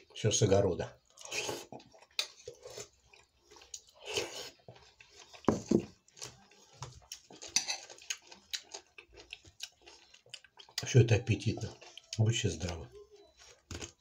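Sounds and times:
wet chewing mouth noises: 0:01.1 - 0:11.0.

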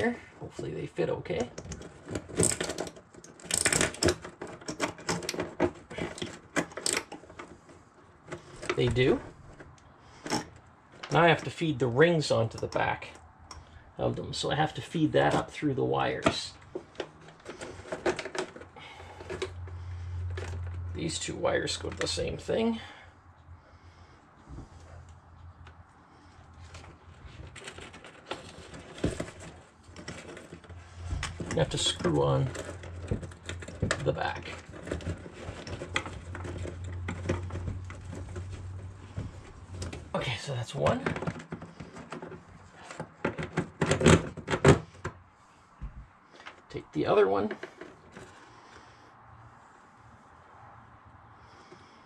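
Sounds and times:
plastic clicking and scraping on wood: 0:01.4 - 0:11.2, 0:16.2 - 0:21.0, 0:24.7 - 0:40.1, 0:40.8 - 0:45.2.

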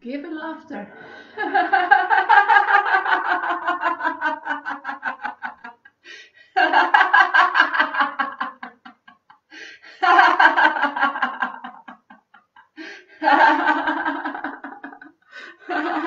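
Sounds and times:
woman laughing loudly: 0:01.3 - 0:05.9, 0:10.0 - 0:16.0.

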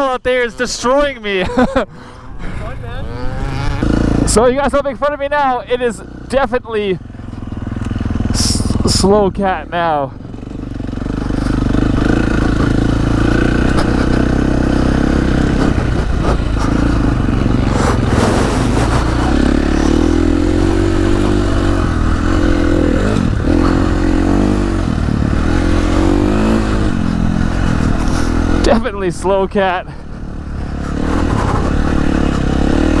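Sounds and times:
dirt bike engine revving: 0:02.5 - 0:33.0
wind noise: 0:14.9 - 0:28.7.

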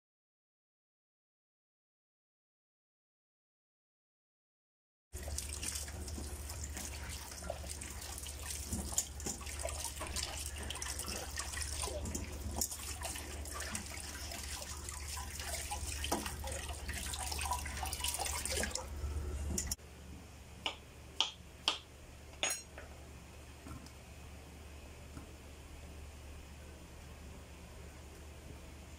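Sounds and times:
tap water running into steel sink: 0:05.2 - 0:18.8.

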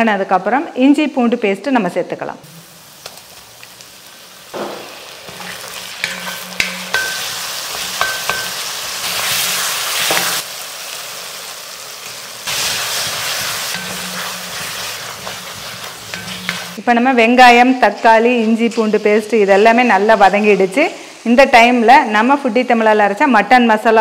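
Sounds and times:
food sizzling in oil: 0:02.4 - 0:24.0
wooden spatula scraping pan: 0:12.5 - 0:16.8.

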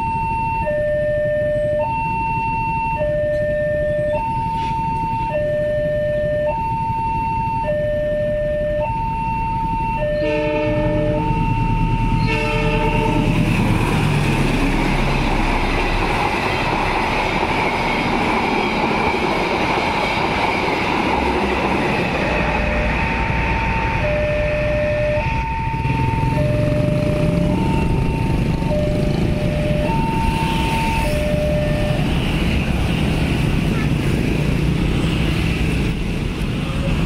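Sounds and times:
level crossing alarm ding-dong: 0:00.0 - 0:13.1, 0:22.2 - 0:32.1
passing train rumble: 0:00.0 - 0:37.0
locomotive horn: 0:10.0 - 0:13.7.

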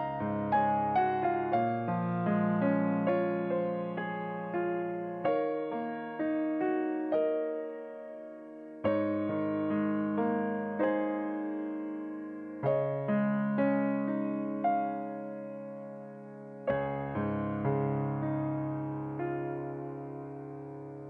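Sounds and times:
gentle piano music: 0:00.0 - 0:21.0.

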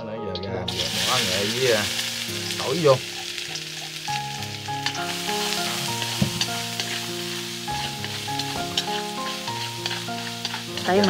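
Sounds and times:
background music with held notes: 0:00.0 - 0:11.0
garlic sizzling in fat: 0:00.7 - 0:11.0
stirring clicks: 0:08.0 - 0:11.0.

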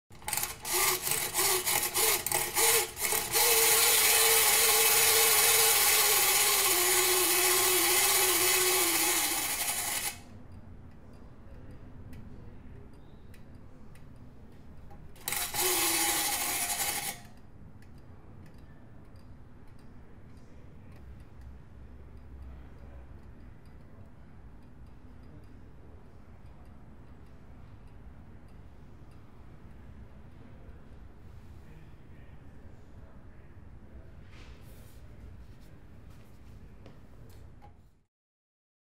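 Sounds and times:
ratchet winding strokes: 0:00.1 - 0:10.2, 0:15.2 - 0:17.3
clockwork mechanism whirring: 0:00.1 - 0:10.3, 0:15.2 - 0:17.4.

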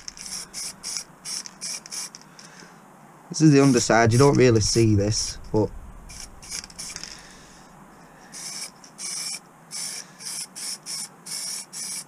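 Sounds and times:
spray paint can hissing: 0:00.0 - 0:02.2, 0:08.3 - 0:12.0.

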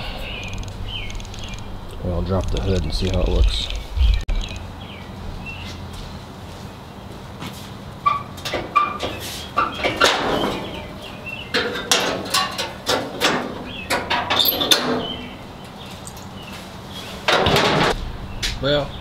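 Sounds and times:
metal hood clanking: 0:08.1 - 0:15.4, 0:17.2 - 0:18.0
hood slamming shut: 0:17.2 - 0:18.0.

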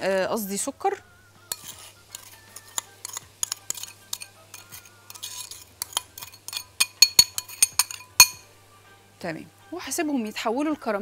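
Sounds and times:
utensil clinking against glass bowl: 0:01.5 - 0:08.4.

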